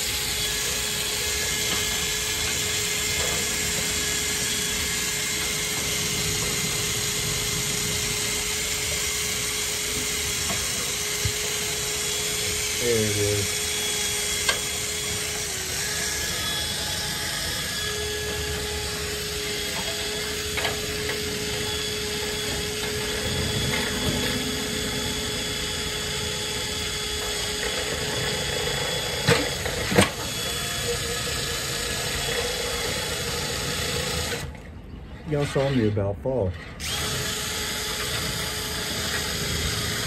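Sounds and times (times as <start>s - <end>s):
cordless drill motor whine: 0.0s - 35.9s, 36.5s - 40.0s.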